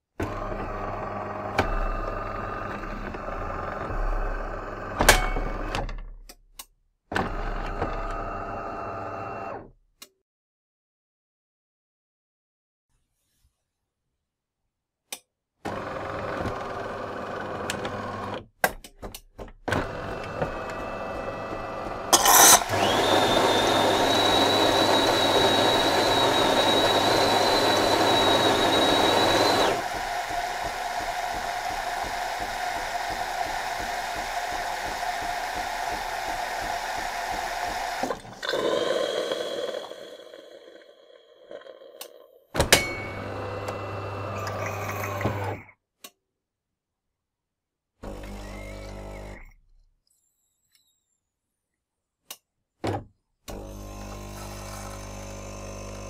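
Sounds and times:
high steady whistle: 0:23.5 - 0:29.8
steam hissing through milk: 0:24.6 - 0:42.1.

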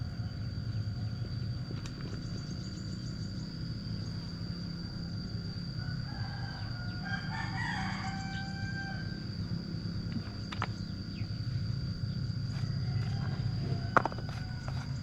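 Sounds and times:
steady low hum: 0:00.0 - 0:15.0
thin high whine: 0:00.0 - 0:15.0
rooster crowing: 0:05.7 - 0:09.4, 0:12.5 - 0:15.0.

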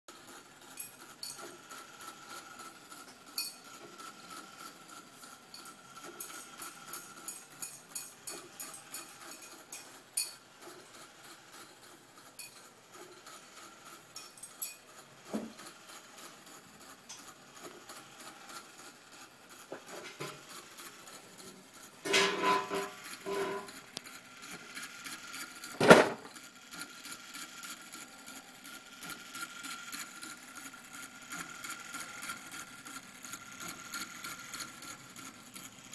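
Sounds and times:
metal clatter with ringing: 0:03.3 - 0:03.8, 0:05.5 - 0:10.4, 0:12.3 - 0:13.4, 0:14.2 - 0:15.6, 0:21.4 - 0:23.9.

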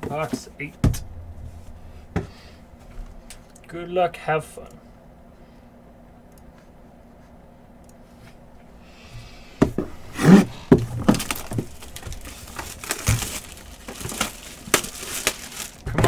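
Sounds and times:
plastic rustling: 0:10.4 - 0:16.0
box knocks and handling: 0:10.7 - 0:14.9.

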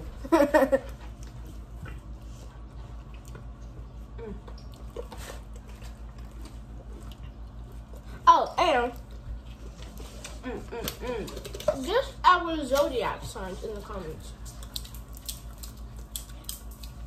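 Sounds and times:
soft chewing: 0:00.7 - 0:11.8, 0:12.7 - 0:17.0.

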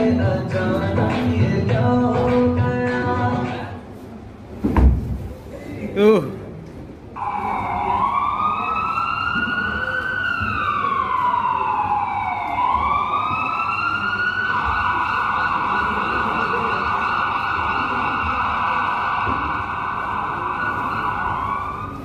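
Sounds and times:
wailing siren: 0:07.2 - 0:22.0.

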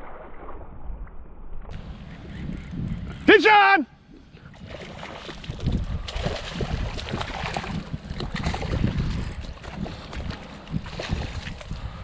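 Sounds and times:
wind buffeting microphone: 0:01.7 - 0:03.4, 0:04.1 - 0:12.0.

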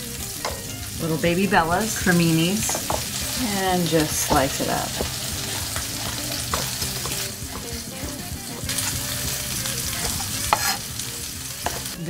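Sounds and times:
pepper sizzling in frying pan: 0:00.0 - 0:12.0.

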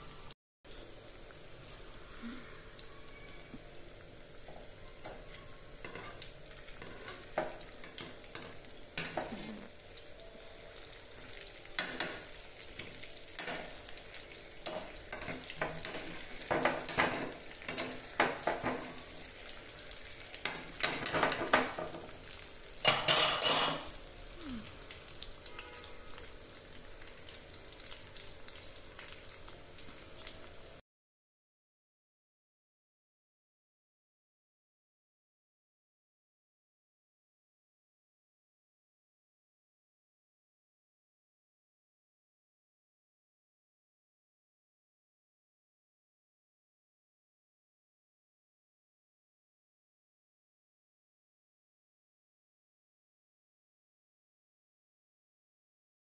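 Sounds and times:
potatoes deep-frying in hot oil: 0:00.0 - 0:30.8.

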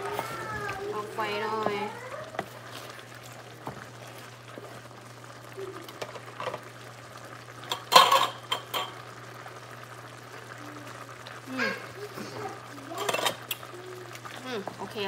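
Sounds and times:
curry bubbling in pan: 0:00.0 - 0:15.0
utensil clattering on pan: 0:07.7 - 0:09.0, 0:13.0 - 0:13.5.

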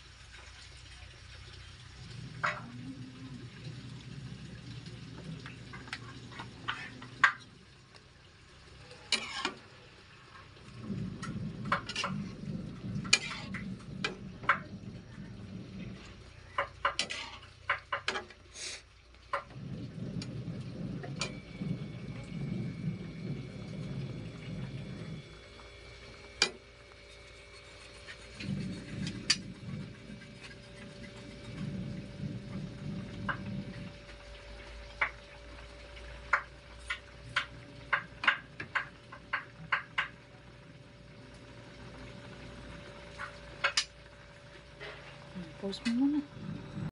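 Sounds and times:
low rumbling noise: 0:01.0 - 0:17.8, 0:19.2 - 0:46.9
spatula scraping a frying pan: 0:05.8 - 0:07.4, 0:09.0 - 0:09.7, 0:11.2 - 0:14.7, 0:15.8 - 0:19.6, 0:26.4 - 0:32.3.

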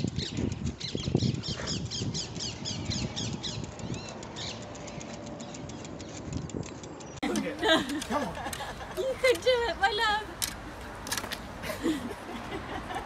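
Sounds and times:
small birds chirping: 0:00.0 - 0:08.3.

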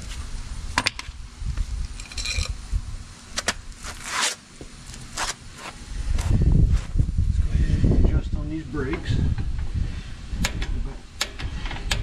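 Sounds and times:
clothes and shoes scraping: 0:03.4 - 0:07.1.

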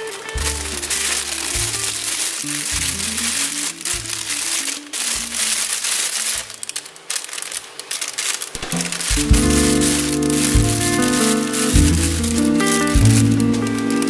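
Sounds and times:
background music: 0:00.0 - 0:05.5, 0:08.6 - 0:14.0
plastic bag crinkling: 0:00.0 - 0:14.0.

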